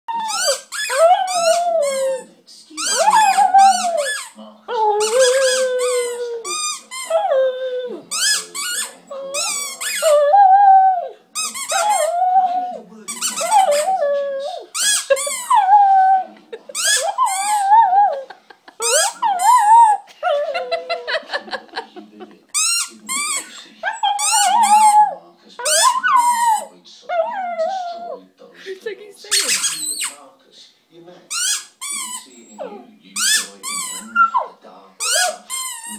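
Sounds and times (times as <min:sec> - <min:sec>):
dog howling: 0:00.1 - 0:02.2, 0:02.9 - 0:04.1, 0:09.1 - 0:12.8, 0:13.4 - 0:14.7, 0:15.5 - 0:16.3, 0:17.0 - 0:21.2, 0:23.8 - 0:28.2
squeaky rubber ball: 0:00.2 - 0:02.2, 0:02.8 - 0:10.4, 0:11.4 - 0:12.5, 0:13.1 - 0:16.1, 0:16.8 - 0:18.1, 0:18.8 - 0:20.0, 0:22.6 - 0:27.9, 0:29.3 - 0:30.1, 0:31.3 - 0:35.9.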